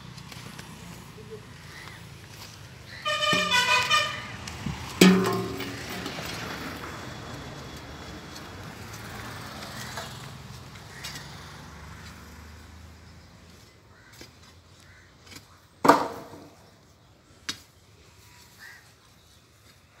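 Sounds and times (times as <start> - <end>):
vehicle horn tooting: 3.0 - 4.4.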